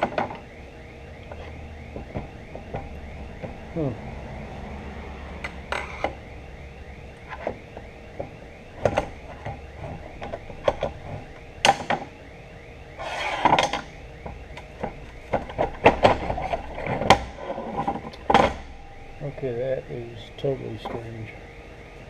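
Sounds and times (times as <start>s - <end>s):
metal scrape: 13.0s - 13.7s.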